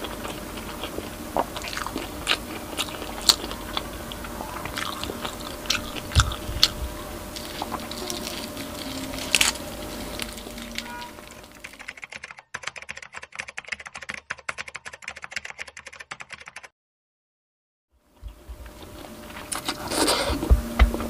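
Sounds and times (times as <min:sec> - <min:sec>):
sharp crunch: 0:00.0 - 0:12.0
chewing crispy food: 0:00.0 - 0:12.3, 0:18.2 - 0:20.4
keyboard typing clicks: 0:11.5 - 0:16.7.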